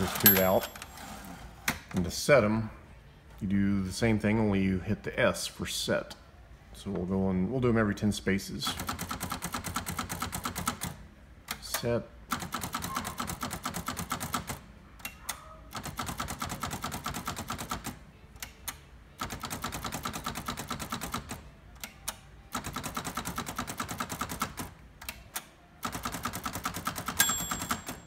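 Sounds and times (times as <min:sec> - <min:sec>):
typewriter carriage clicking: 0:00.0 - 0:01.0.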